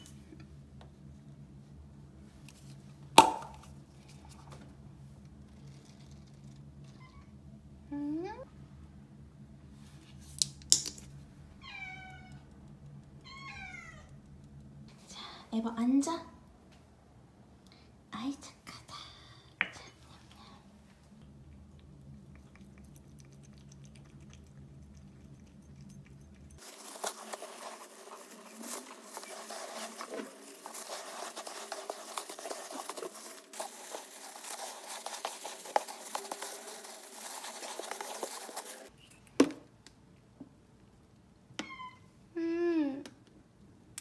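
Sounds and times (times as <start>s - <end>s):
quiet hum: 0.0s - 44.0s
scooping gritty cat litter: 26.6s - 38.9s.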